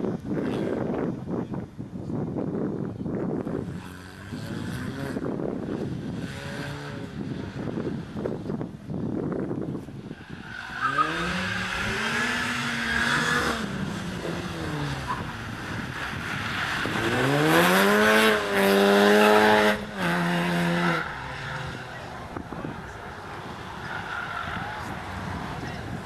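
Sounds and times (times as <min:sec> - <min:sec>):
car engine revving hard: 0:10.8 - 0:22.1.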